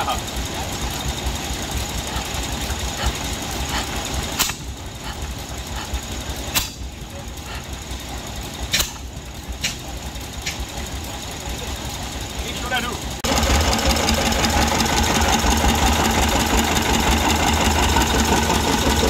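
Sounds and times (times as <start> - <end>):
faint engine clicks: 0.0 - 19.0
stationary engine throbbing: 0.0 - 19.0
sharp engine cracks: 0.3 - 7.0, 8.4 - 11.0.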